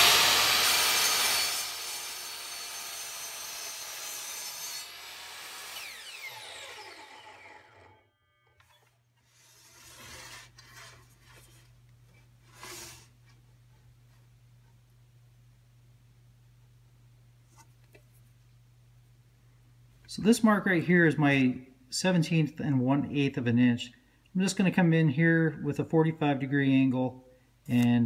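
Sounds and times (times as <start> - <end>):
saw blade winding down: 0.0 - 10.5
miter saw cutting wood: 0.0 - 11.1
board rubbing on wooden bench: 9.3 - 11.7, 12.4 - 13.2.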